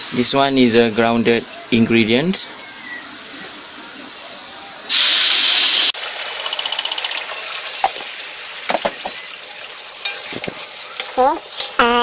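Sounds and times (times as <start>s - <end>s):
spice paste sizzling in hot oil: 4.9s - 11.8s.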